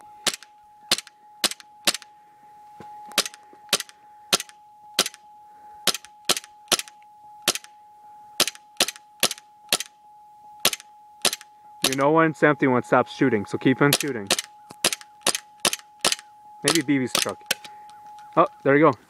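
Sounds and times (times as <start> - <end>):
airsoft pistol shots: 7.5 - 7.7, 8.4 - 9.9, 10.6 - 12.0, 13.9 - 17.3.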